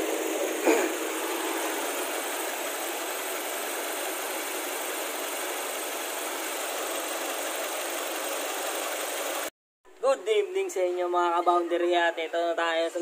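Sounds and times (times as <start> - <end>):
car engine idling: 0.0 - 9.5.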